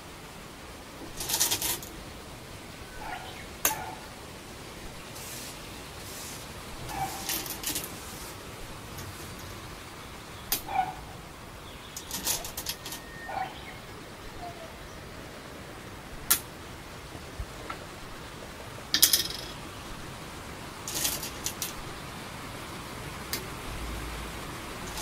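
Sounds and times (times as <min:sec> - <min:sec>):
game stones clacking on wooden board: 0:19.0 - 0:19.6, 0:20.9 - 0:21.8.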